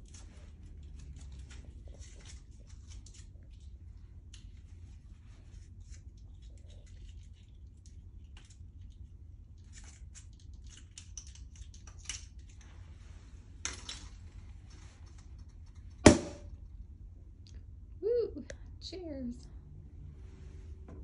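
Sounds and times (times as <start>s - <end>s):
foil crinkling and wire clicks: 0.0s - 4.7s, 5.8s - 12.7s
champagne cork popping: 16.0s - 16.4s.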